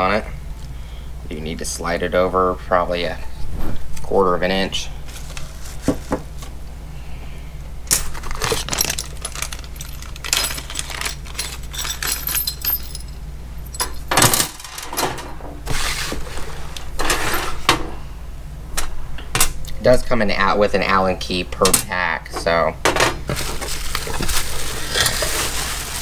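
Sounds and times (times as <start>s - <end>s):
rustling: 5.0s - 6.5s, 23.4s - 26.0s
metal hardware clinking and rattling: 7.9s - 15.5s.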